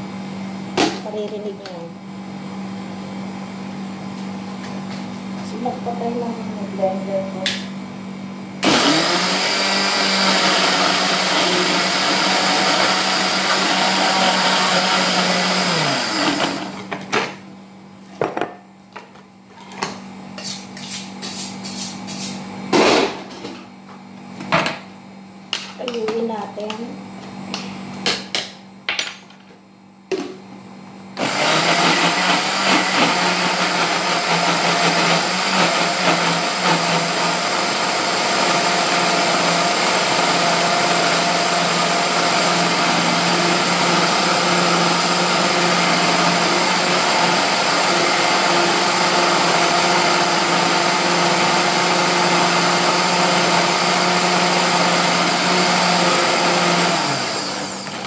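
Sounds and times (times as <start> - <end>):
electric blender running: 8.4 - 17.4, 31.1 - 58.0.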